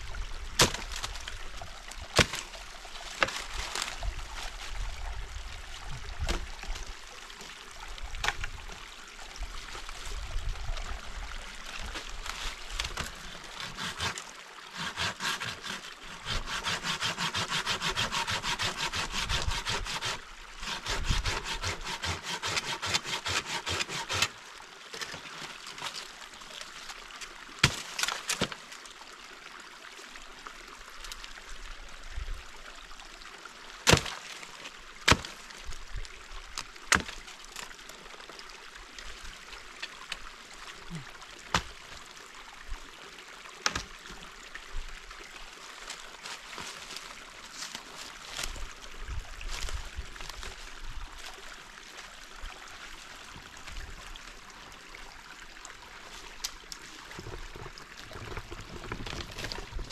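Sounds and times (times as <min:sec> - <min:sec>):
hand saw cutting branch: 0:00.6 - 0:01.2, 0:02.2 - 0:02.5, 0:03.1 - 0:04.0, 0:12.3 - 0:24.4, 0:27.6 - 0:28.6, 0:33.8 - 0:34.4, 0:35.0 - 0:35.4, 0:43.6 - 0:43.9.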